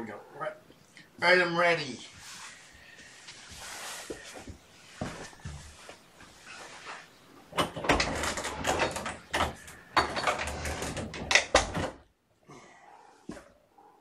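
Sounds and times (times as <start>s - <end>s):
fabric rustling and scrabbling: 2.2s - 7.1s
sharp clicks and knocks: 7.5s - 12.1s.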